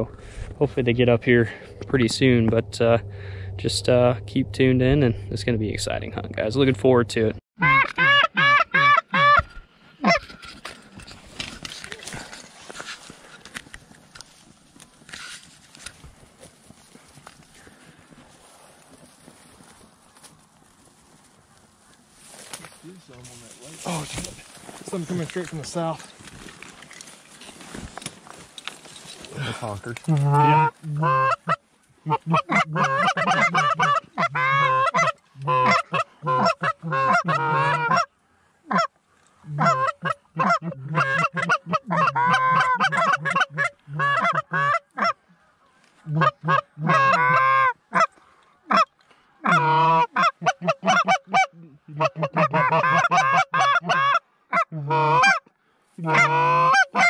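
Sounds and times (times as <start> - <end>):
goose call honks and clucks: 7.6 - 10.4, 30.1 - 45.2, 46.0 - 57.0.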